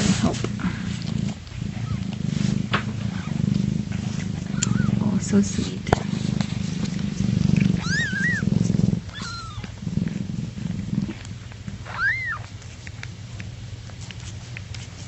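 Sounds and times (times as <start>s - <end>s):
cat purring: 0.0s - 15.0s
kitten squeaking: 1.8s - 2.0s, 3.0s - 3.4s, 4.4s - 5.1s, 7.7s - 8.5s, 9.1s - 9.8s, 11.8s - 12.6s.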